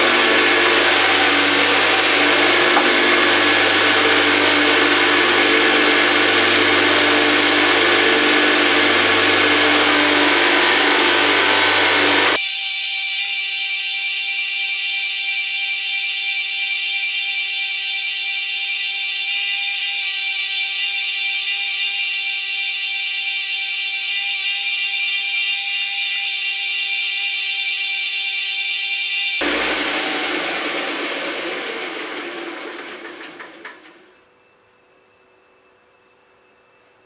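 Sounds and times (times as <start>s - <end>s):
metal grinding on grinder wheel: 0.0s - 29.5s
bench grinder motor hum: 0.0s - 31.7s.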